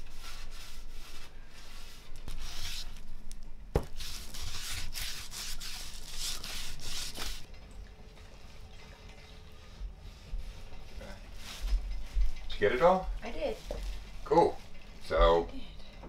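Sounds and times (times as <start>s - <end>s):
cloth rags rubbing wood: 0.0s - 7.5s, 10.1s - 12.3s.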